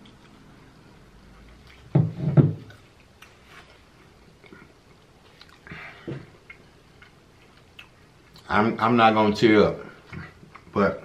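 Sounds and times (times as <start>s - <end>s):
person chewing pizza crust: 0.0s - 1.9s, 2.7s - 8.5s
wet mouth sounds: 4.4s - 8.5s.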